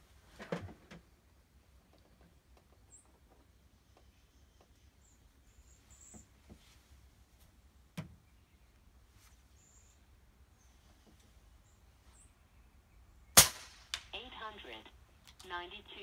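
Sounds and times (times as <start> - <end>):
faint high bird chirps: 8.2 - 13.4.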